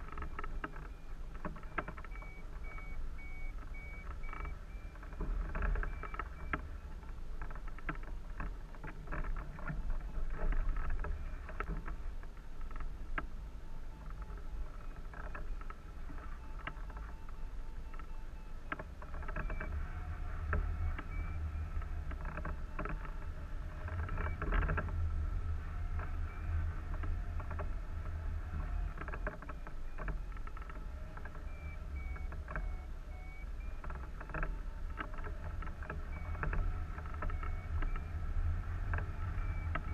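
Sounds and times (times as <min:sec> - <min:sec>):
faint high beeping: 0:00.0 - 0:07.0, 0:28.5 - 0:38.2
wind buffeting camera: 0:00.0 - 0:39.9.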